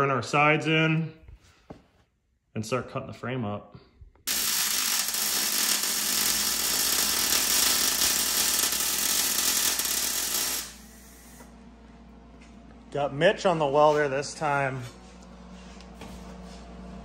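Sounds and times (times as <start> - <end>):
welder arc buzzing: 4.2 - 11.6.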